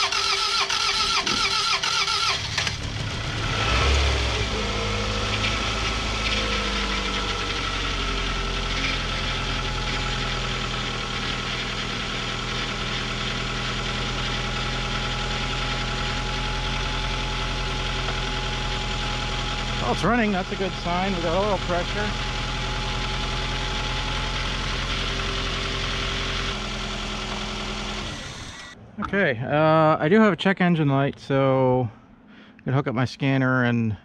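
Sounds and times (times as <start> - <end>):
starter cranking engine: 0.0 - 28.8
car engine idling: 0.0 - 29.3.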